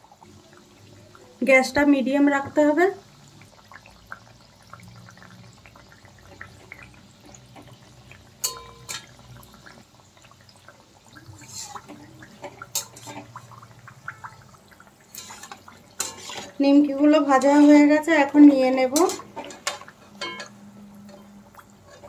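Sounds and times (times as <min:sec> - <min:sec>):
dough sizzling in hot oil: 0:00.0 - 0:22.0
metal spatula clicking on pan: 0:08.4 - 0:09.1.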